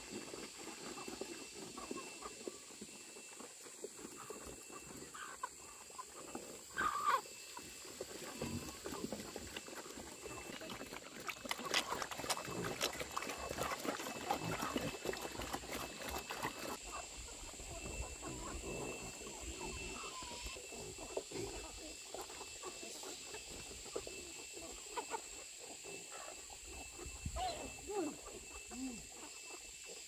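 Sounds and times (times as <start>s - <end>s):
pigs grunting: 3.8s - 26.7s
pig squealing: 6.7s - 7.3s.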